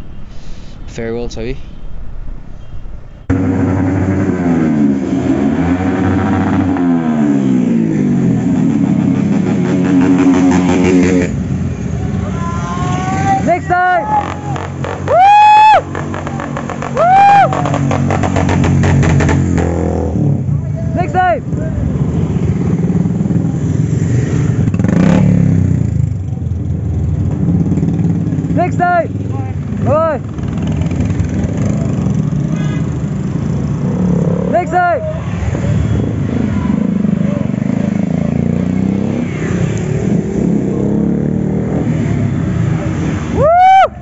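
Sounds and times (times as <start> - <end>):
motorcycles revving past: 3.3 - 12.0, 15.8 - 20.5, 21.5 - 28.6, 29.2 - 43.4.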